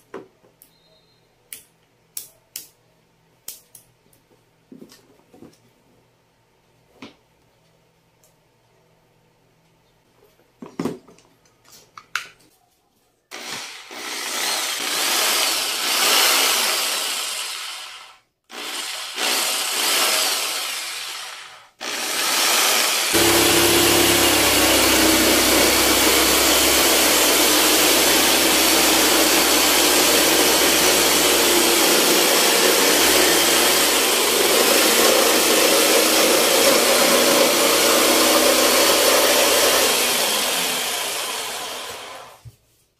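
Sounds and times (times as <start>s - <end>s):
jigsaw motor running: 13.3s - 42.4s
jigsaw sawing through wood: 13.3s - 42.4s.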